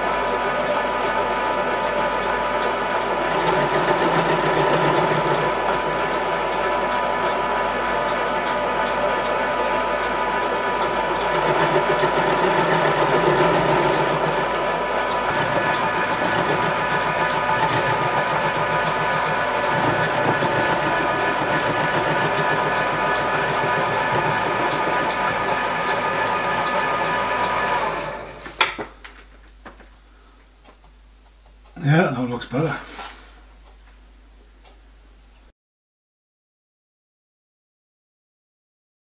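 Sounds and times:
milling machine cutting metal: 0:00.1 - 0:28.7.

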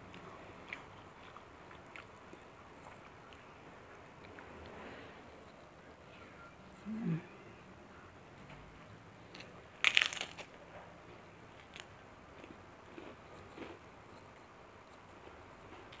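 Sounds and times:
faint chewing clicks: 0:00.1 - 0:04.7, 0:11.6 - 0:16.0
cracker crunching: 0:09.3 - 0:10.6, 0:11.5 - 0:16.0.

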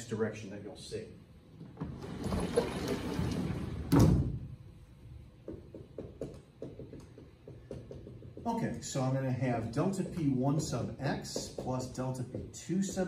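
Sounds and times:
marker writing on whiteboard: 0:05.5 - 0:08.8, 0:09.6 - 0:13.0.

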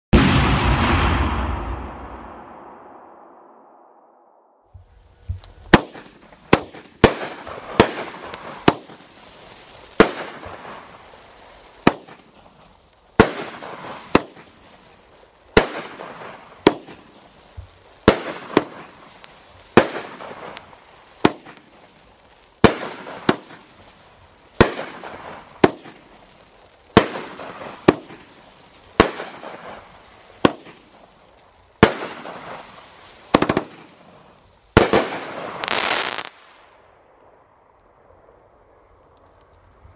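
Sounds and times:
firework bangs with crackle: 0:00.1 - 0:03.7, 0:04.6 - 0:37.2.

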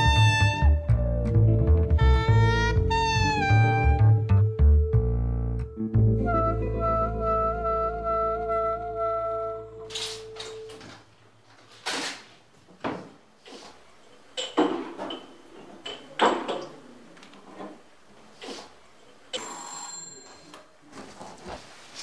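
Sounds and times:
cupboard doors and items clattering: 0:09.9 - 0:13.7, 0:14.4 - 0:18.7.

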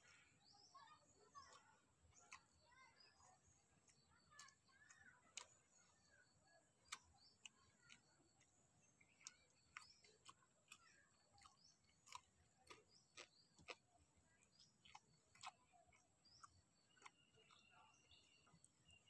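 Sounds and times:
man chewing: 0:06.8 - 0:18.8.

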